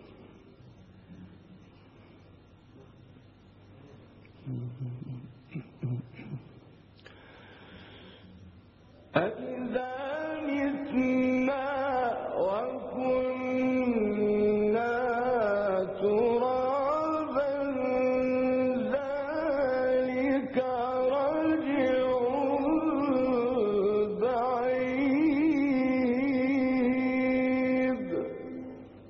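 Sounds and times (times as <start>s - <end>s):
man chanting recitation: 4.2s - 6.6s, 9.0s - 29.0s.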